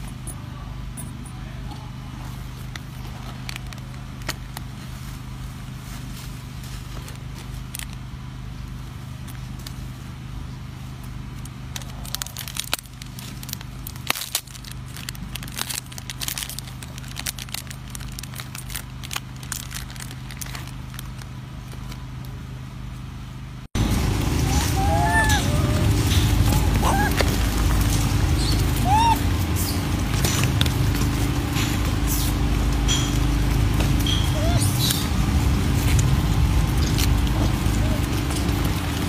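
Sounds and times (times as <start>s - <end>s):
steady low hum: 0.0s - 39.0s
plastic wrapper crinkling: 3.2s - 4.7s, 11.7s - 22.0s.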